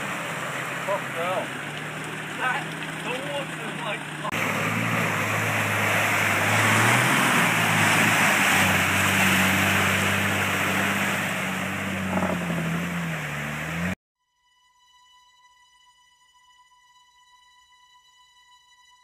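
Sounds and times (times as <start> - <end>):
churning water and mud hiss: 0.0 - 14.0
engine working hard under load: 0.0 - 14.0.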